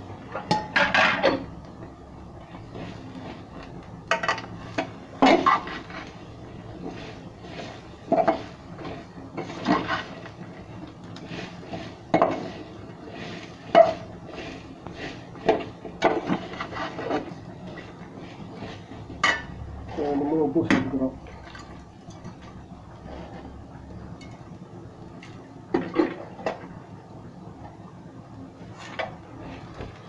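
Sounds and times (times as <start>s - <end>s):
food frying in oil: 0.0s - 30.0s
ladle scraping metal pot: 2.6s - 10.4s, 11.2s - 20.0s.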